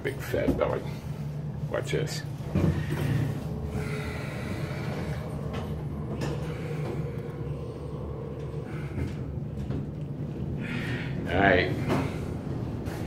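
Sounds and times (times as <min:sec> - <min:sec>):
elevator car humming: 0:00.0 - 0:13.0.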